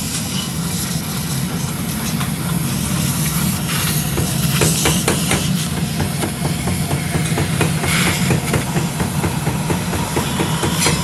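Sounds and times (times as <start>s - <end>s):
cutting torch hissing: 0.0s - 11.0s.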